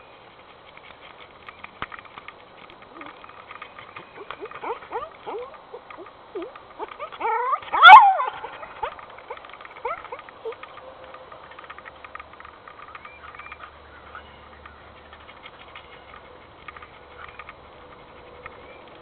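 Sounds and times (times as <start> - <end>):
dog whining: 2.9 - 10.6
dog yelping: 4.0 - 10.6.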